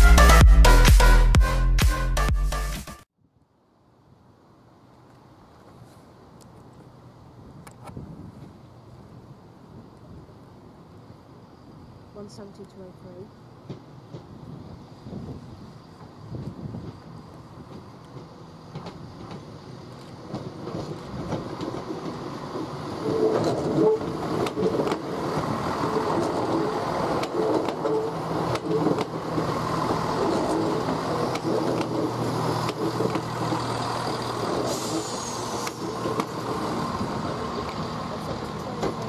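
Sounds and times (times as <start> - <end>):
passenger train rumbling: 4.4 - 39.0
wheel clicks over rail joints: 17.7 - 36.8.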